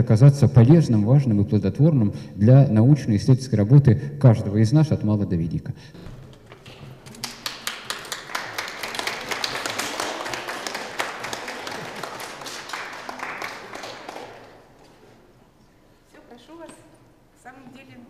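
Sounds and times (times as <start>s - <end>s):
crowd applauding: 6.7s - 14.8s.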